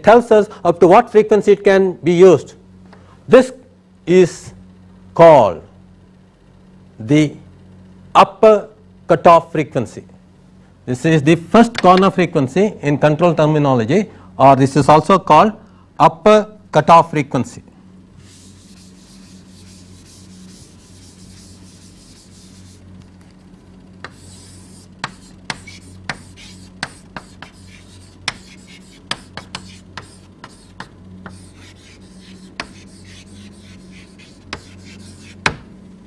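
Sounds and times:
low electrical hum: 0.0 - 36.0
pen scratching: 24.0 - 35.4.

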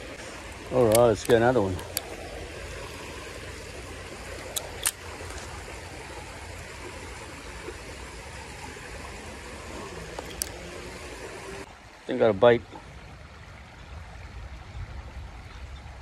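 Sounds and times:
creek water running: 0.0 - 16.0
sharp clicks: 4.4 - 5.5.

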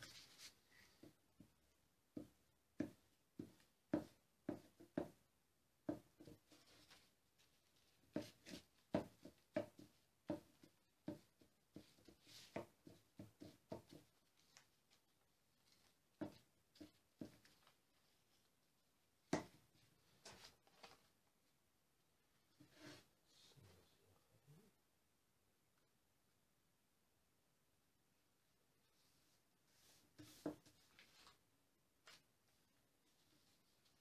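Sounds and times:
paper rustling: 0.0 - 1.0, 6.5 - 8.7, 14.1 - 16.0, 16.7 - 18.5, 20.0 - 21.3, 29.8 - 31.4.

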